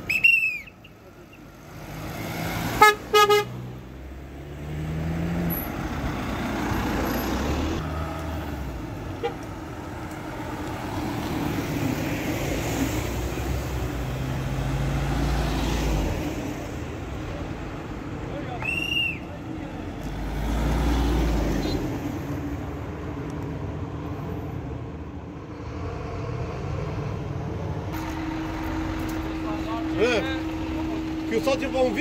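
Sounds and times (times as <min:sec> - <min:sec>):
vehicle engine with road noise: 0:00.0 - 0:32.0
car horn toots: 0:02.8 - 0:03.6, 0:09.2 - 0:09.4.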